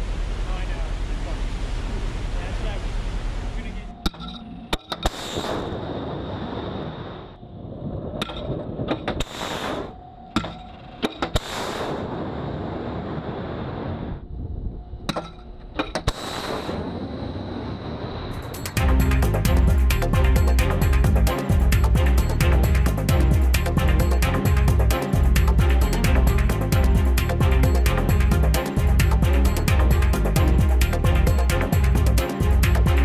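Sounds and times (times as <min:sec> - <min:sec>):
missile launch crack: 0:05.0 - 0:06.8, 0:11.4 - 0:13.9, 0:16.1 - 0:18.2.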